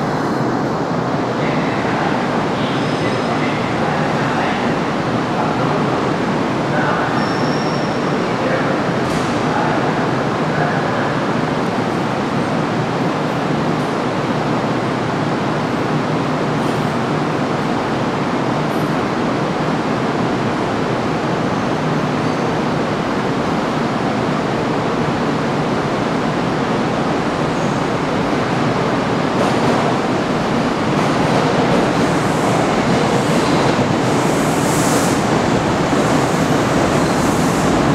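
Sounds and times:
train wheels rumbling on rails: 7.9s - 37.9s
train hiss: 31.9s - 37.9s.

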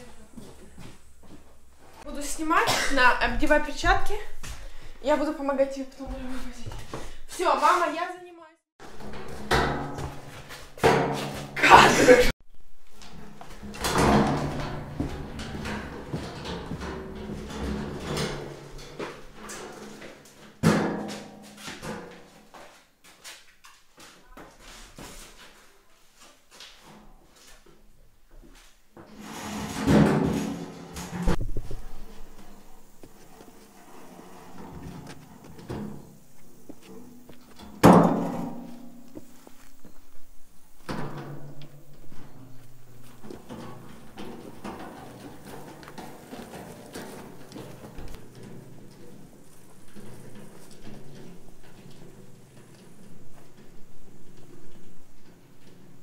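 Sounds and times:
metal wheelbarrow rattling on wood: 8.8s - 12.3s, 13.0s - 22.4s, 29.0s - 39.7s, 40.7s - 56.0s.

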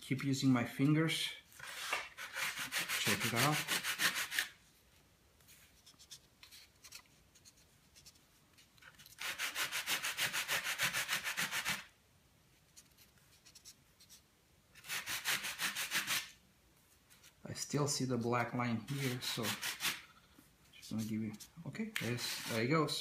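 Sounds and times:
sanding block rubbing wood: 1.7s - 4.6s, 9.2s - 11.9s, 14.8s - 16.4s, 18.9s - 20.0s, 22.0s - 23.0s.

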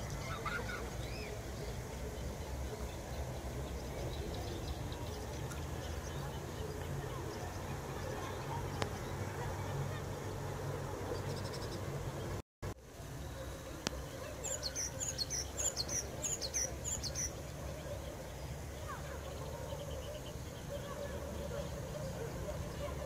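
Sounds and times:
small bird chirping: 14.4s - 18.0s.

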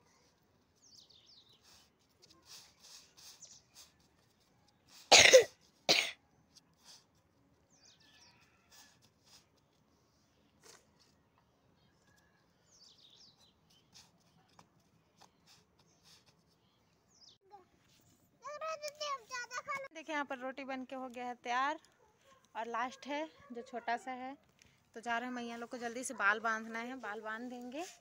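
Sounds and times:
person coughing: 5.1s - 6.2s.

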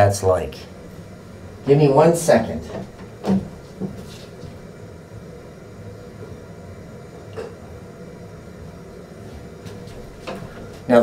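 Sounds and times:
person moving about: 2.6s - 4.7s, 9.1s - 11.0s.

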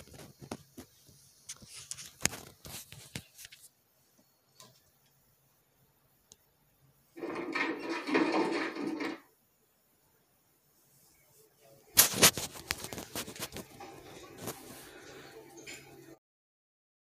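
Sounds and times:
glitchy static crackles: 11.0s - 15.0s.

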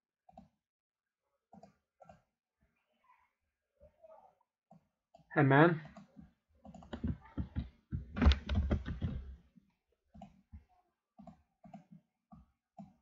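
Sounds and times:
keyboard typing: 5.9s - 9.3s.

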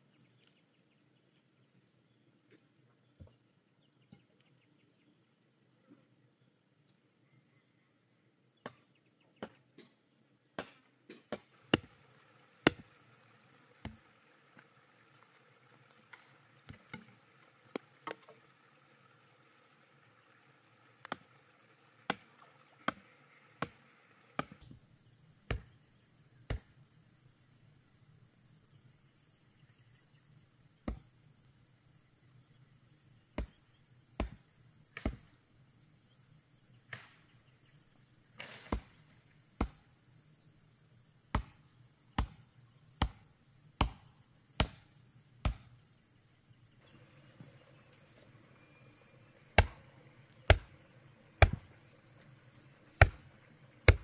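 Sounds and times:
high insect drone: 11.6s - 54.0s
tool knocking on wooden posts: 12.6s - 12.8s, 50.5s - 50.8s, 51.4s - 51.8s, 53.0s - 54.0s.

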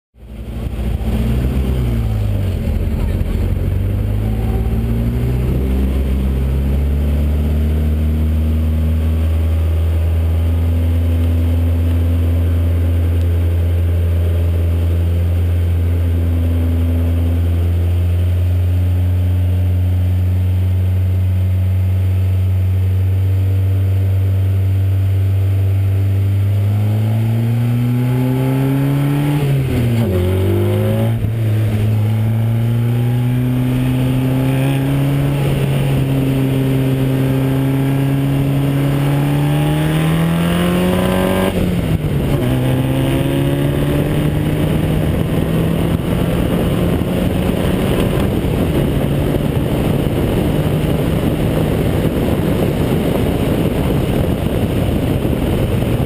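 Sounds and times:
race car engine at speed: 0.2s - 56.0s.

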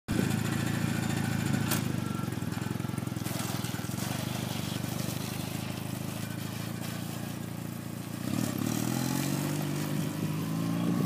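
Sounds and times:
motorcycle engine running: 0.1s - 11.0s.

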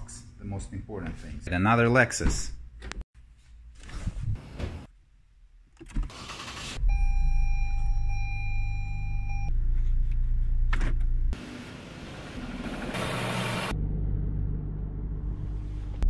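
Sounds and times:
car engine starting and idling: 5.8s - 16.0s.

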